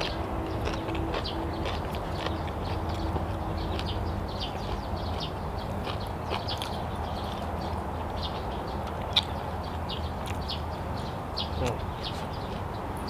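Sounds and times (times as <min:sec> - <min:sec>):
person chewing food: 0:00.0 - 0:08.2, 0:08.8 - 0:10.5.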